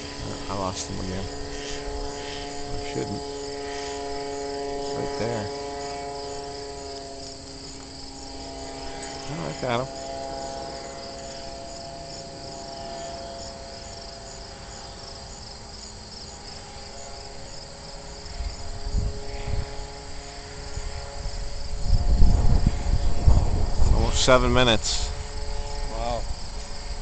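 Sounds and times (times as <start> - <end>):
distant drone: 0.0 - 27.0
insects chirping: 0.0 - 27.0
wind buffeting on microphone: 18.2 - 27.0.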